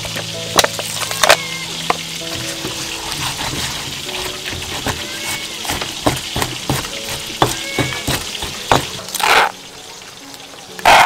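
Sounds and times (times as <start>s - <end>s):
pestle pounding in stone mortar: 2.3s - 9.4s.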